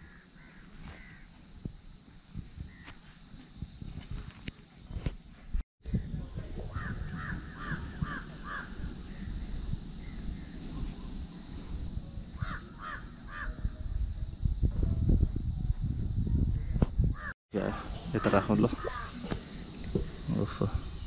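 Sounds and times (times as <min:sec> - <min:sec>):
crow cawing: 0:00.0 - 0:01.2, 0:06.7 - 0:08.8, 0:12.4 - 0:13.5, 0:18.2 - 0:19.2.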